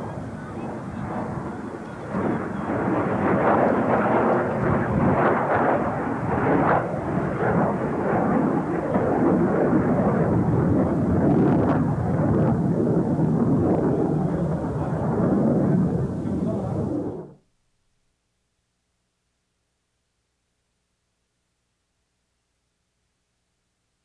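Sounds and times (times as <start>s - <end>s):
jet fighter flying past: 0.0s - 17.4s.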